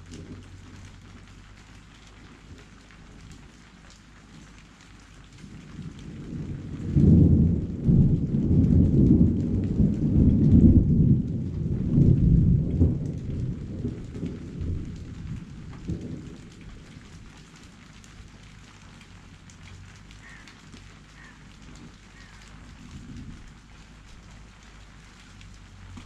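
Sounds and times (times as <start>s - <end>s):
rain hissing: 0.0s - 26.0s
rolling thunder: 5.4s - 18.4s, 21.0s - 24.6s.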